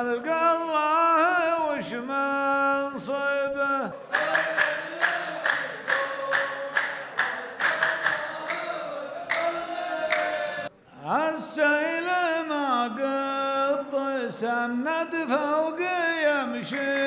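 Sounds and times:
man singing: 0.0s - 4.3s, 11.0s - 17.0s
men chanting together: 3.8s - 10.7s
men clapping in unison: 4.1s - 10.5s, 16.7s - 17.0s.

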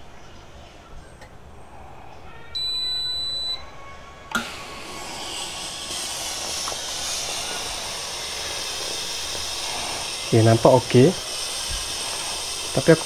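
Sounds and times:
high beep: 2.6s - 3.6s
steam hissing from iron: 4.3s - 13.0s.

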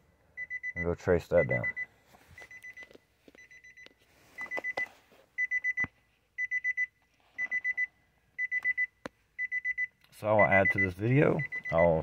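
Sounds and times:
rapid high-pitched warning beeps: 3.4s - 12.0s.

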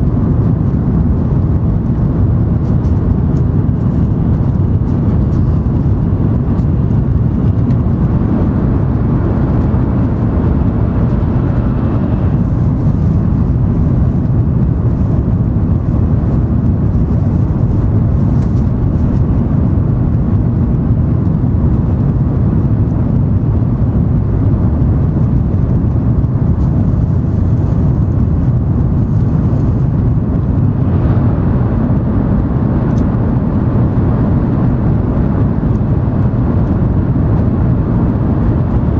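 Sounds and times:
air rushing past: 0.0s - 19.8s
train running gear rumble: 0.0s - 38.9s.

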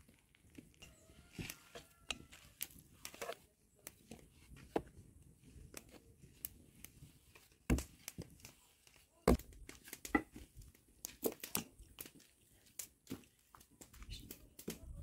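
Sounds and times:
food handling clicks and rustles: 0.0s - 14.8s.

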